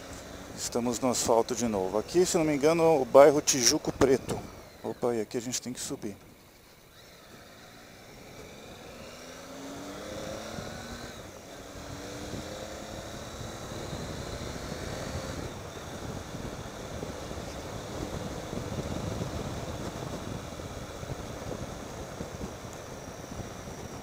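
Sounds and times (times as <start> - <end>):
motorcycle engine accelerating: 0.0 - 5.9, 6.6 - 24.0
wind noise: 0.1 - 5.1, 9.8 - 24.0.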